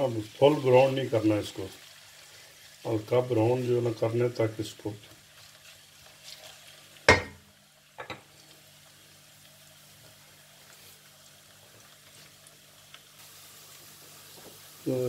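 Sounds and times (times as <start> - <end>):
onions sizzling in oil: 0.0 - 15.0
spatula knocking on pan: 7.1 - 7.4.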